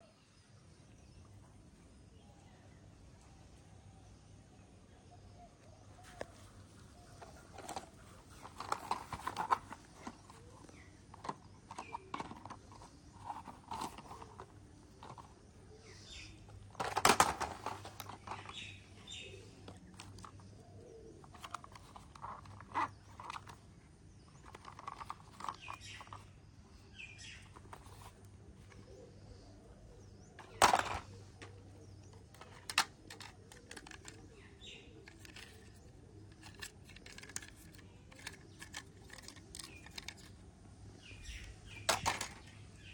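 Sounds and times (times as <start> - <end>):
plastic toy vehicles clattering: 6.2 - 29.2, 30.4 - 42.9
sharp plastic clacks: 7.2 - 15.4, 16.5 - 20.5, 21.2 - 23.6, 24.3 - 26.3, 30.4 - 40.4, 41.7 - 42.6.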